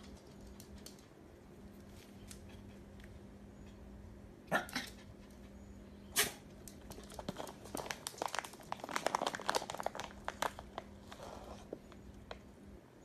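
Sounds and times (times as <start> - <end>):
small dog barking: 4.5 - 5.0.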